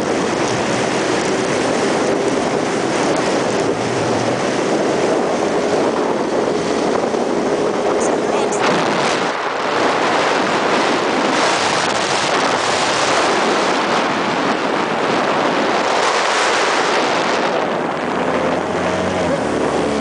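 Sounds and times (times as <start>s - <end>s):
wind rushing on microphone: 0.0s - 20.0s.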